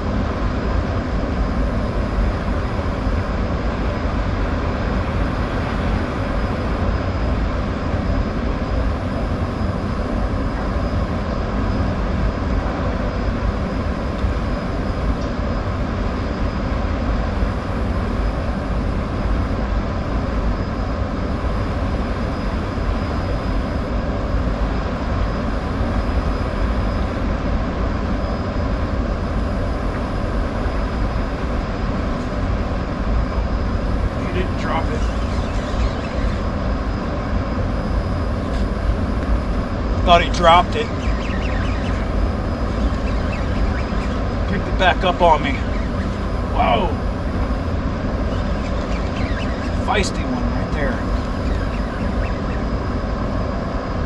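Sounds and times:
faint high whine: 0:00.0 - 0:54.0.

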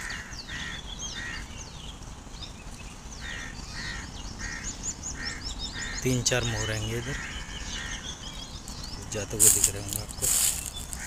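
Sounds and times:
small birds chirping and whistling: 0:00.0 - 0:11.0.

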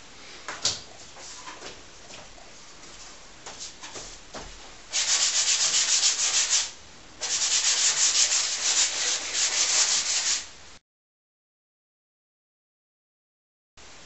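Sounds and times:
paintbrush scrubbing on canvas: 0:04.9 - 0:10.5.

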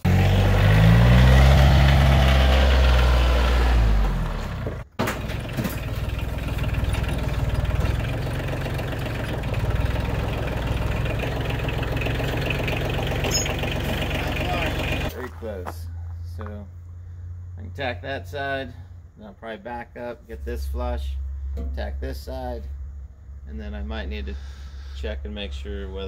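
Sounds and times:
diesel tractor engine running: 0:00.0 - 0:17.6
engine running steadily: 0:03.8 - 0:17.4.

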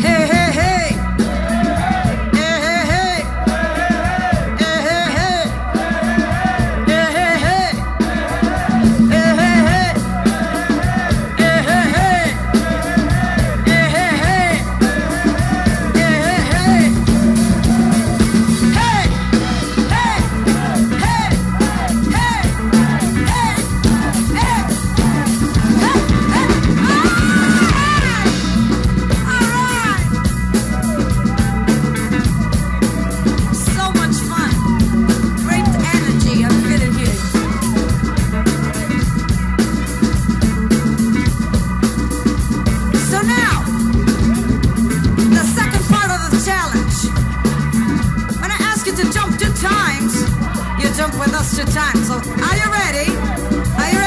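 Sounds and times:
woman singing: 0:00.0 - 0:01.0, 0:02.3 - 0:03.2, 0:04.5 - 0:05.5, 0:08.9 - 0:10.0, 0:10.6 - 0:18.0, 0:18.7 - 0:28.5, 0:35.5 - 0:37.8, 0:50.8 - 0:54.0
drums: 0:00.0 - 0:54.0
electric bass: 0:00.0 - 0:54.0
electric guitar: 0:00.0 - 0:54.0.

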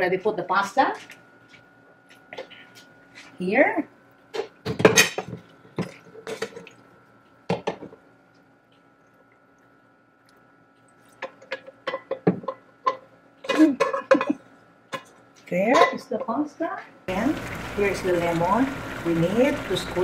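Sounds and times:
cookware knocks and clinks: 0:11.4 - 0:14.4.

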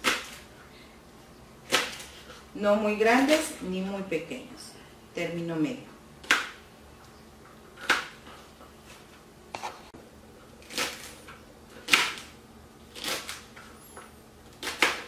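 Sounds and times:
knife chopping on plastic board: 0:00.0 - 0:00.4, 0:01.6 - 0:02.1, 0:06.2 - 0:06.6, 0:07.8 - 0:08.2, 0:11.8 - 0:13.4, 0:14.5 - 0:15.0.

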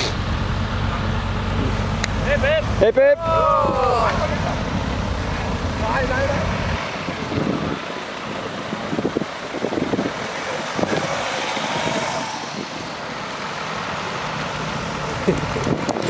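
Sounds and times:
tyres hissing on wet road: 0:00.0 - 0:15.8
car engine noise: 0:00.0 - 0:16.0
wind on microphone: 0:15.3 - 0:16.0.

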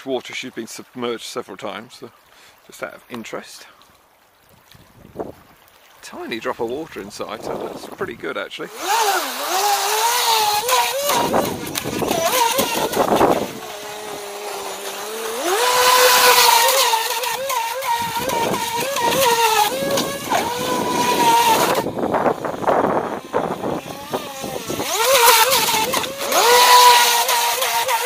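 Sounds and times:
rc boat motor whining: 0:07.1 - 0:28.0.

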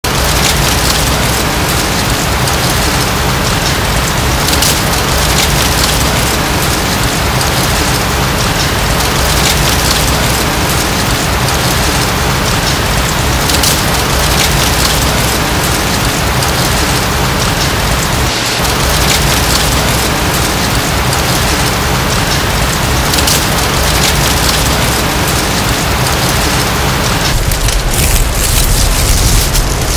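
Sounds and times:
dry leaves falling rustle: 0:00.0 - 0:29.9.

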